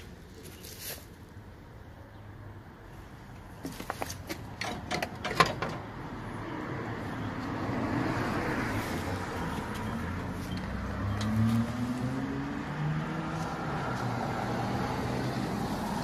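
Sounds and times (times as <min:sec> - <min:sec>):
car passing: 0:05.8 - 0:16.0
vehicle engine rising in pitch: 0:07.7 - 0:16.0.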